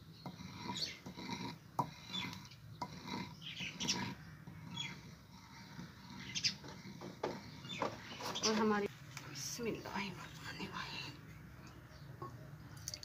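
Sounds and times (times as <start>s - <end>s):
pestle scraping and squeaking: 0.0s - 8.9s.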